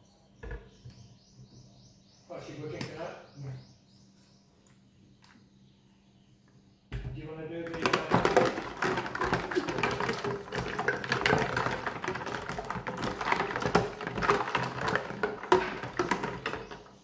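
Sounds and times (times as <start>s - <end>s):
plastic parts clattering in water: 7.6s - 17.0s.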